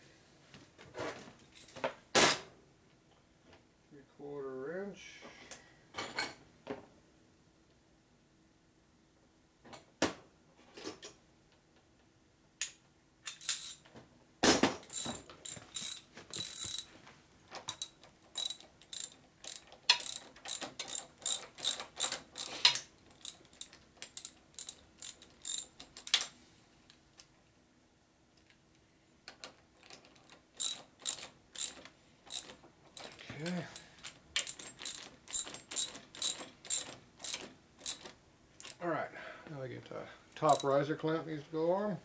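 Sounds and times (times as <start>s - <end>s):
ratchet wrench clicking: 14.9s - 16.9s, 17.7s - 26.3s, 30.6s - 33.2s, 34.4s - 38.8s, 40.5s - 40.7s.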